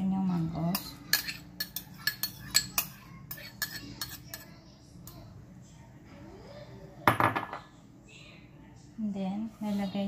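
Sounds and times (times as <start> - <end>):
dishware clattering: 0.6 - 4.5, 7.0 - 7.7
metal spoon scraping ceramic bowl: 0.7 - 4.5.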